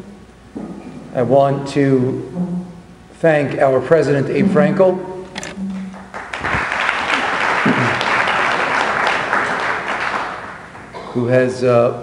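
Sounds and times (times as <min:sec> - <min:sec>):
audience applauding: 0:05.7 - 0:11.0.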